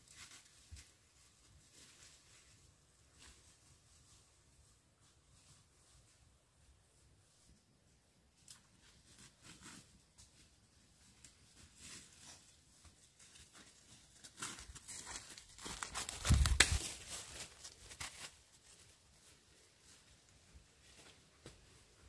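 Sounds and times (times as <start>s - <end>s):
crackling tearing handling noises: 14.2s - 18.4s.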